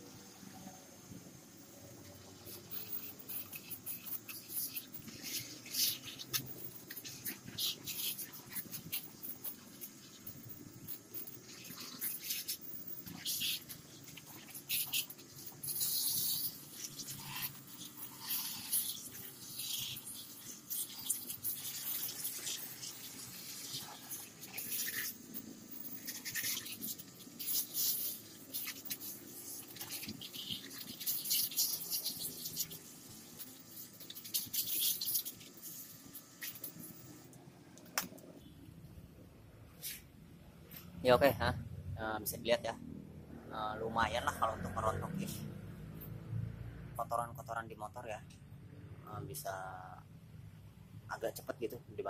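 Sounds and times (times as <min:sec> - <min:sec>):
pressure washer spray hissing: 0:02.2 - 0:10.2, 0:11.4 - 0:25.3, 0:26.0 - 0:36.7.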